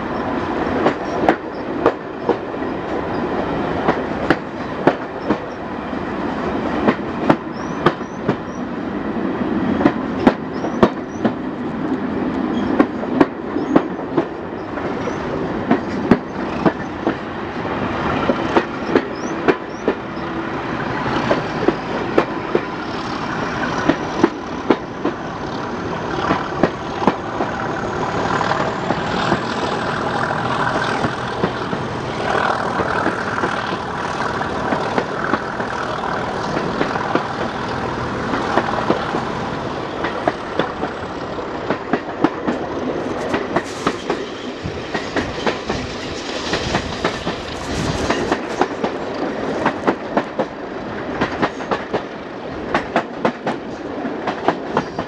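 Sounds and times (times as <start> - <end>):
diesel locomotive engine working hard: 0.0 - 55.0
wheels clicking over rail joints: 0.2 - 5.6, 40.0 - 55.0.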